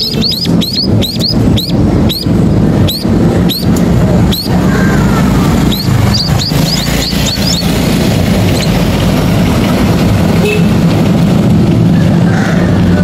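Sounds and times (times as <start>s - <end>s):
nestlings squeaky calls: 0.0s - 9.0s
road traffic rumble: 0.0s - 13.0s.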